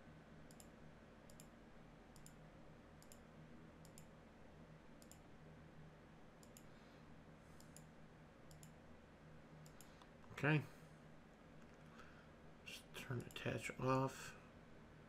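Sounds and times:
low steady hum: 0.0 - 15.0
computer mouse clicks: 0.5 - 1.5, 2.1 - 2.4, 3.0 - 4.1, 5.0 - 5.2, 6.4 - 6.7, 7.6 - 7.9, 8.5 - 8.8, 9.6 - 10.1.

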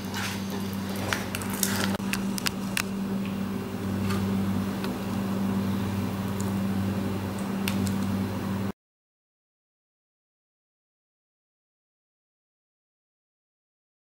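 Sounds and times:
low machine hum: 0.0 - 8.8.

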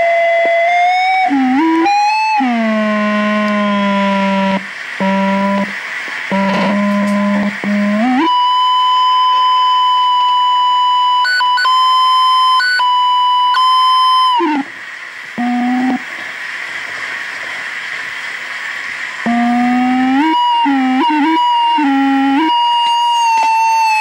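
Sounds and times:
high electronic tone: 0.0 - 14.7, 15.4 - 16.0, 19.2 - 24.0
hiss: 0.2 - 8.4, 13.6 - 24.0
short lower tone: 1.3 - 14.7.

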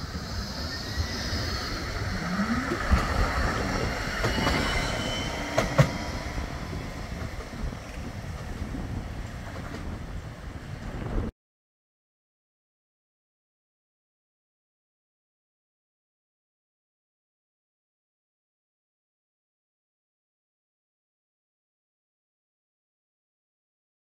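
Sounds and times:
high wheel squeal: 0.0 - 8.3
traction motor whine: 0.0 - 9.3
wheels clicking over rail joints: 0.0 - 11.0
tram running on rails: 0.0 - 11.3.

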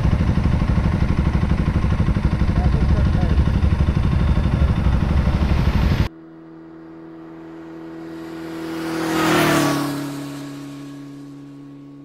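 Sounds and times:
low fluttering rumble: 0.0 - 6.1
hum of steady tones: 0.0 - 12.0.

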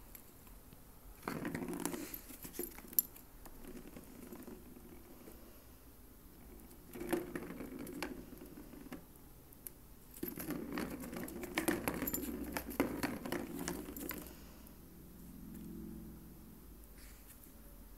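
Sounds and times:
plastic ball rattling in track: 6.5 - 9.0, 10.2 - 14.3.

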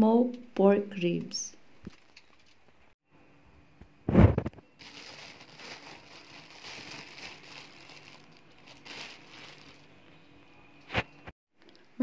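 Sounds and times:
plastic bag crinkling: 4.8 - 10.1.

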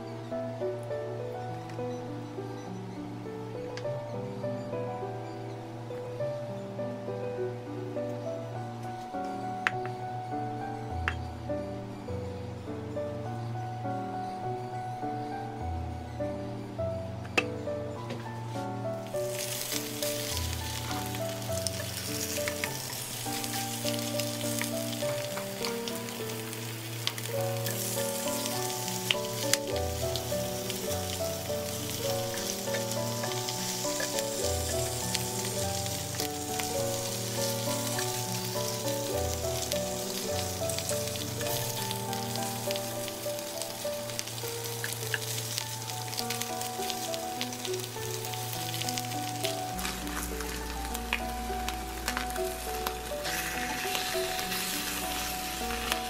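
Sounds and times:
background piano music: 0.0 - 56.0
meat sizzling in a pan: 19.0 - 56.0.

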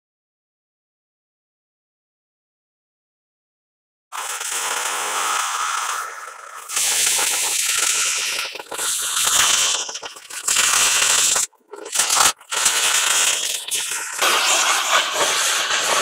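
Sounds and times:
sparks and slag crackling: 4.2 - 16.0
cutting torch hissing: 4.3 - 16.0.

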